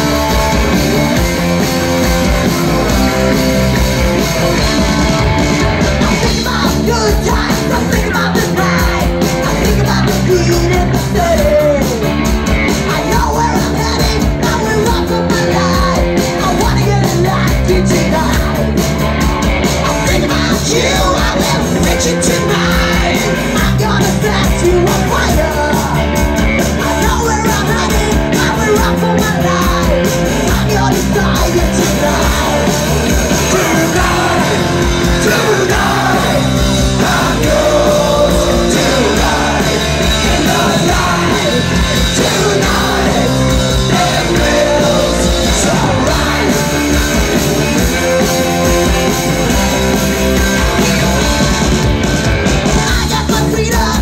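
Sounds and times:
punk rock band playing live: 0.0 - 54.0.

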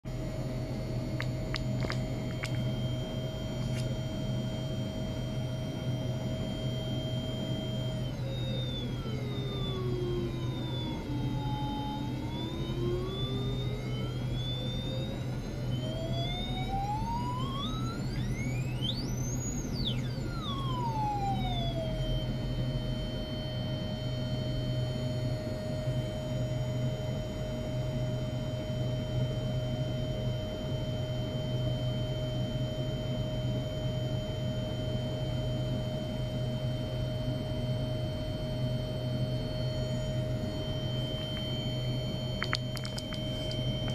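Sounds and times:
low steady hum: 0.1 - 43.9
electronic test tone gliding: 38.8 - 43.9.

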